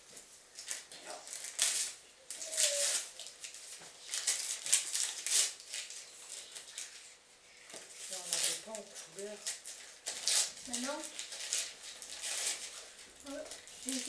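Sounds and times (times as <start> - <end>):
wrapping crinkling and rustling: 0.0 - 14.0.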